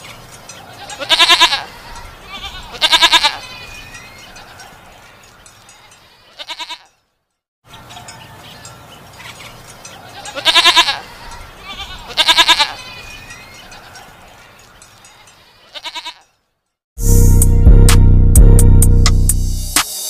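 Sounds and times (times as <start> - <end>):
goats bleating: 0.7 - 4.7, 6.2 - 6.9, 10.0 - 14.1, 15.6 - 16.3.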